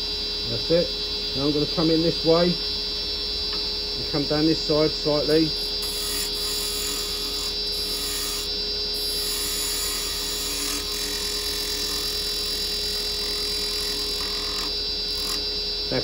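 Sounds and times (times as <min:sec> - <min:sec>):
wood lathe whine: 0:00.0 - 0:16.0
cutter shaving wood: 0:05.3 - 0:16.0.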